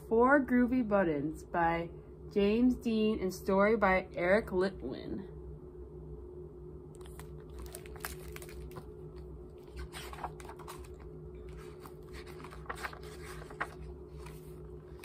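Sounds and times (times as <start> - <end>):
steady low hum: 0.0 - 15.0
book pages rustling: 7.0 - 15.0.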